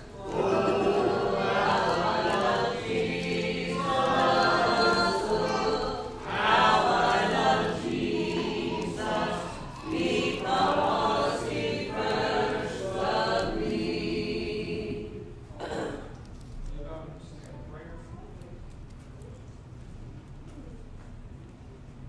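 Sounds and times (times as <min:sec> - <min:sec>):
children and man singing: 0:00.1 - 0:15.1.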